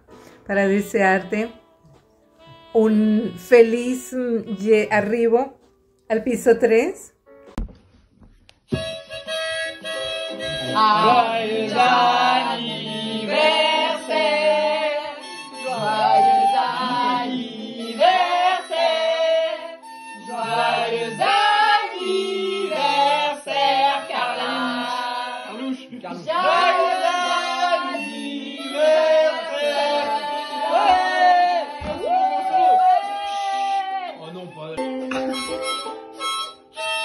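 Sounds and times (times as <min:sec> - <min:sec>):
harmonica: 0:01.0 - 0:05.2, 0:08.7 - 0:37.0
voices singing together: 0:10.3 - 0:34.2
strummed ukulele: 0:34.8 - 0:36.8.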